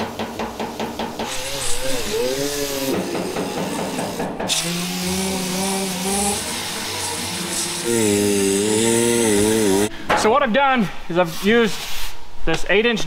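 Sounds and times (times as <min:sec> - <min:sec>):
sander hissing grind: 0:00.1 - 0:09.9
power tool whine: 0:01.2 - 0:09.9.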